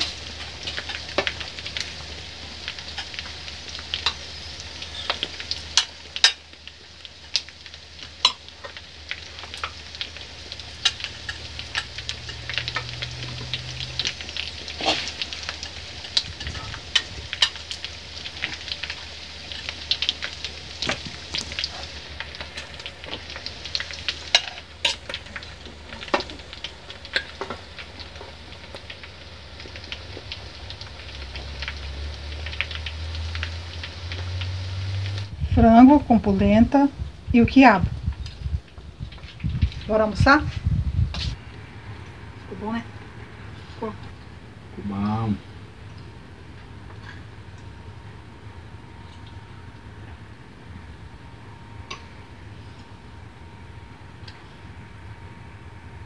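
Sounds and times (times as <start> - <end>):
soft steady hiss: 0.0 - 56.0
low hum: 45.4 - 56.0.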